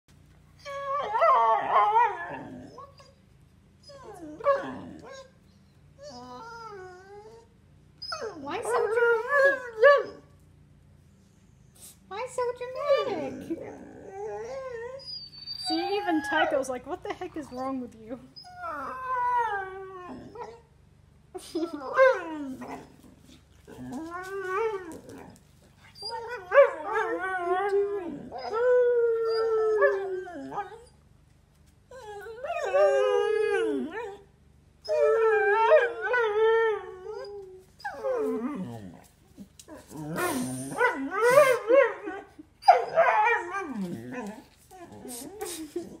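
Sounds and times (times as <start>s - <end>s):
dog howling and whining: 0.6s - 3.1s, 3.8s - 5.4s, 6.0s - 10.3s, 12.7s - 16.6s, 18.4s - 20.6s, 21.7s - 31.0s, 31.9s - 46.0s
dog howling: 26.1s - 30.9s.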